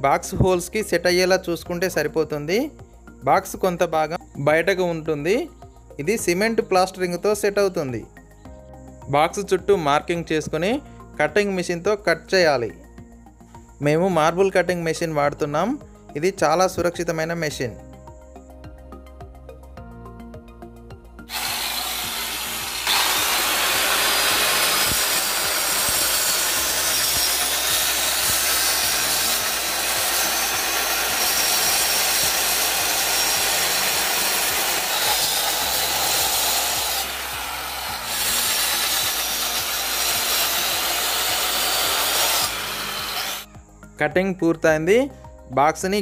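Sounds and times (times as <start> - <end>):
electric cutter cutting brick: 21.3 - 43.5.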